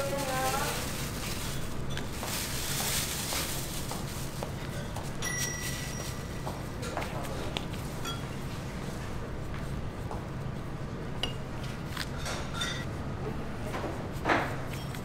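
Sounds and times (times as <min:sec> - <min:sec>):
dishes and utensils clinking: 0:07.9 - 0:08.4, 0:12.1 - 0:12.9
dishes clattering: 0:12.2 - 0:12.9.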